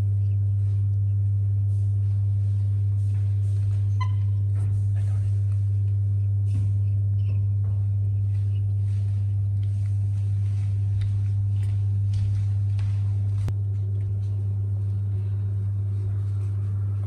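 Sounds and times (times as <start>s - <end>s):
loud steady low hum: 0.0s - 17.0s
soft blanket rustles: 8.2s - 13.5s.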